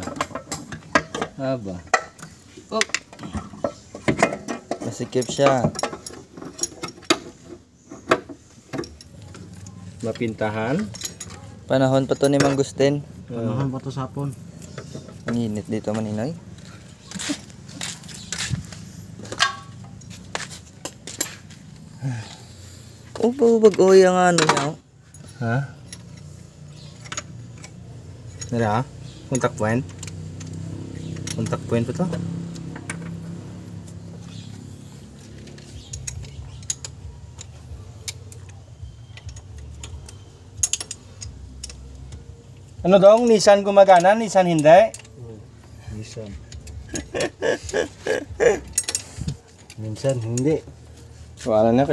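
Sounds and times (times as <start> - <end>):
tools clicking and knocking on metal: 0.0 - 13.0, 13.6 - 21.6, 23.1 - 45.2, 45.9 - 50.8
light metallic clicks and taps: 29.3 - 33.3.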